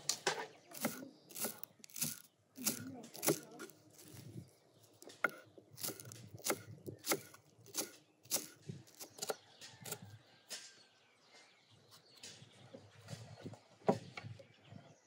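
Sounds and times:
knife chopping on wooden board: 0.7s - 4.4s, 5.0s - 10.1s.

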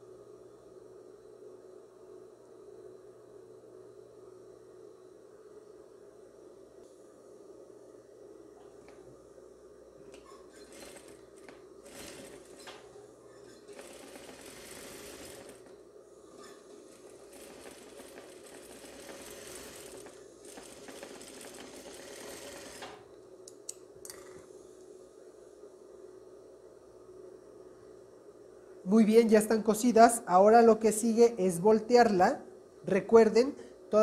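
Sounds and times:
sewing machine stitching: 10.4s - 15.8s, 16.4s - 23.0s.

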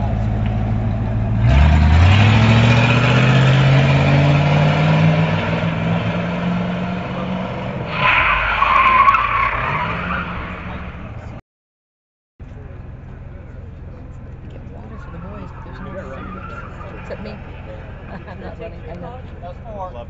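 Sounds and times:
vehicle engine speeding up: 0.0s - 8.0s
loud screech: 7.9s - 11.0s.

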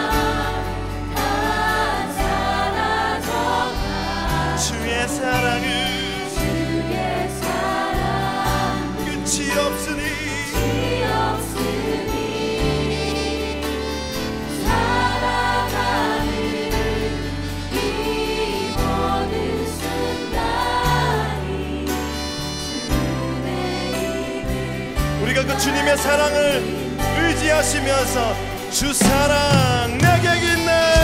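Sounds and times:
voices singing: 0.0s - 31.0s
worship band playing: 0.0s - 31.0s
electric bass low notes: 26.8s - 31.0s.

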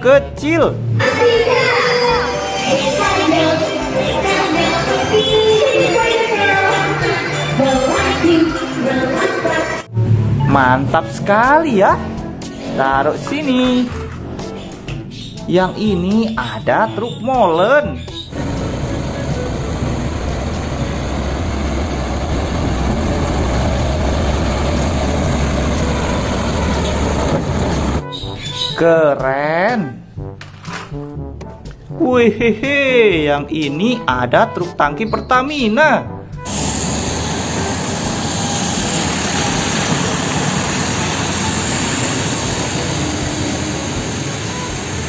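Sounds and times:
diesel truck engine rumbling: 18.2s - 28.1s, 36.2s - 45.0s.

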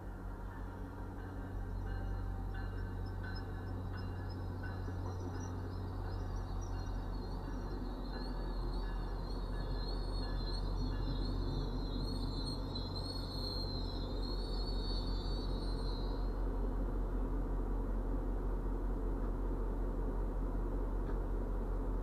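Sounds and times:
faint high wavering squeal: 0.0s - 16.5s
train coaches rumbling past: 0.0s - 22.0s.

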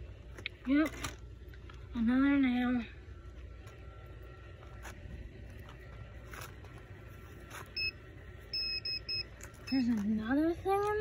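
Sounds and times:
metal detector beeps: 7.7s - 9.9s.

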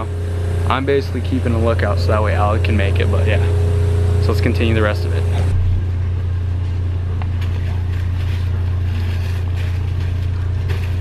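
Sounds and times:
loud low hum: 0.0s - 11.0s
plastic packs rustling on shelf: 7.3s - 11.0s.

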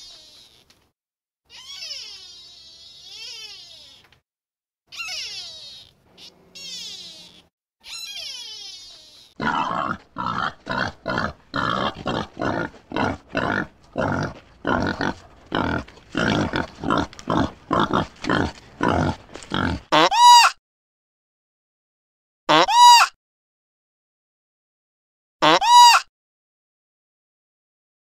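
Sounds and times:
falling animal call: 4.9s - 20.5s
pigs grunting: 9.4s - 20.1s.

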